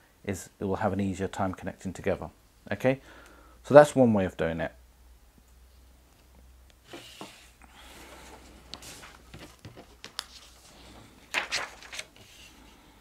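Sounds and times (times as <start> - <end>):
paper rustling and sliding: 6.8 - 13.0.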